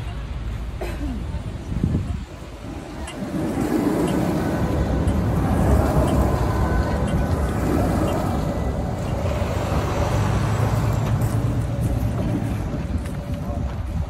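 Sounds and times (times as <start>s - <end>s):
electric tram rumbling on rails: 0.0s - 14.0s.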